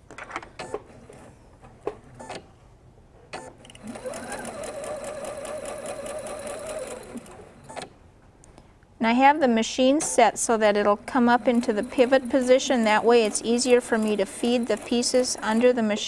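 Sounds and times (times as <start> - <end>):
sewing machine stitching: 3.8 - 7.9, 11.2 - 15.8.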